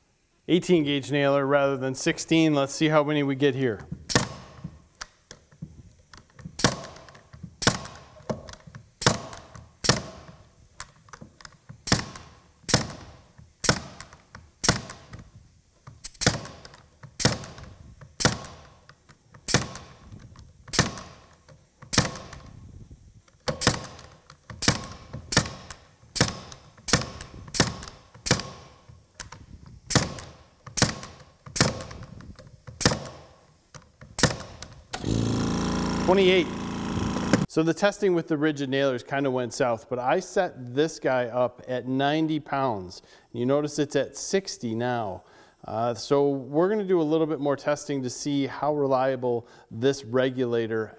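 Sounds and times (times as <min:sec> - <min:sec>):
nail gun firing into wood: 0:04.0 - 0:05.4, 0:06.2 - 0:22.6, 0:23.3 - 0:37.5.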